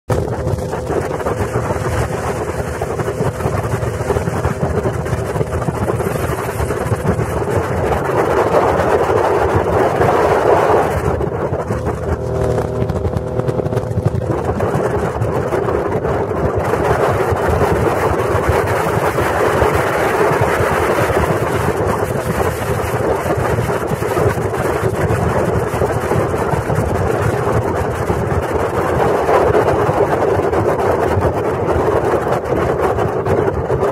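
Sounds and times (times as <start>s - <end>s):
water rushing: 0.1s - 25.4s
motorboat engine: 0.1s - 33.9s
wind buffeting microphone: 0.1s - 33.9s.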